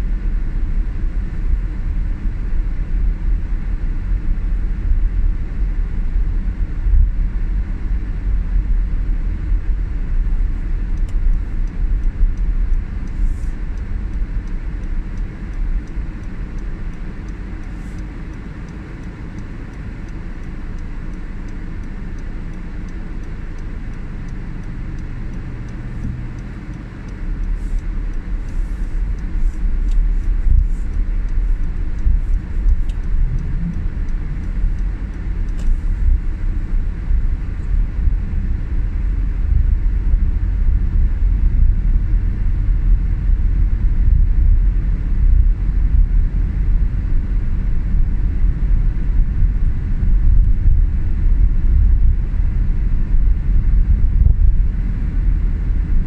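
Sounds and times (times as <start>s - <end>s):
car engine and road noise: 0.0s - 56.0s.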